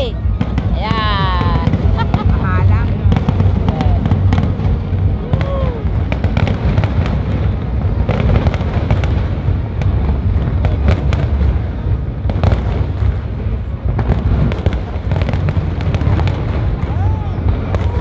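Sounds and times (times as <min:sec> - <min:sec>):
fireworks cracks and bursts: 0:00.0 - 0:18.0
low booming: 0:00.0 - 0:18.0.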